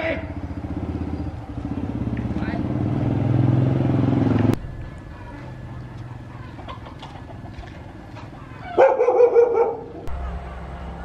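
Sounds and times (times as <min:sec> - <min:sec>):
small dog barking: 0:08.4 - 0:10.0.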